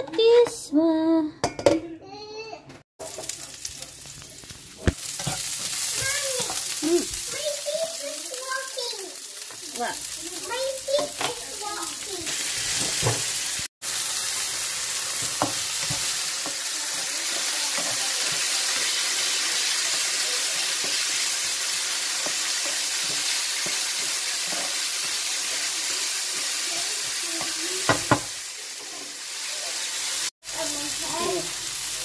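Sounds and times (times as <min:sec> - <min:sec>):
vegetables sizzling in a frying pan: 0:03.0 - 0:32.0
spatula scraping and tapping pan: 0:22.2 - 0:25.7.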